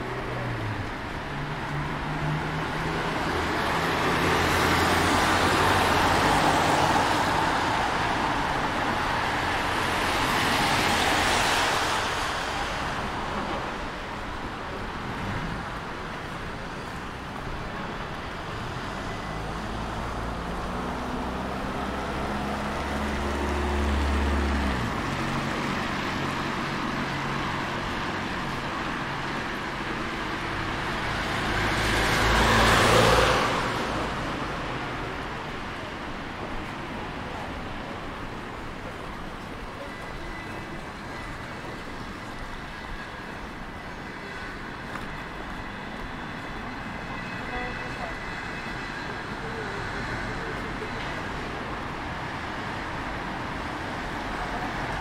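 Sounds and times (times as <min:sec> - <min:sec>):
cars passing close by: 0:00.0 - 0:16.3, 0:16.9 - 0:42.6.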